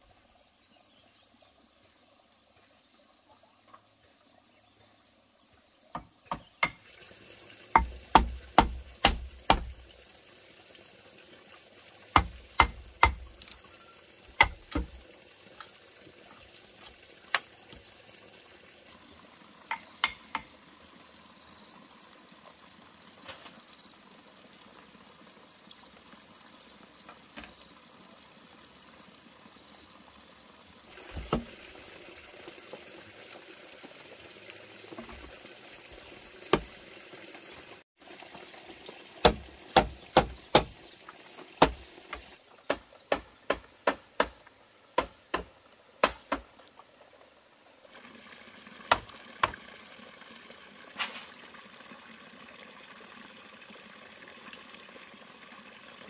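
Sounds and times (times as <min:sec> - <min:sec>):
knocks on bamboo poles: 0:05.9 - 0:06.9, 0:07.7 - 0:09.8, 0:12.1 - 0:13.6, 0:14.4 - 0:15.0, 0:19.7 - 0:20.6, 0:31.1 - 0:31.5, 0:36.5 - 0:36.7, 0:39.2 - 0:40.8, 0:41.6 - 0:46.6.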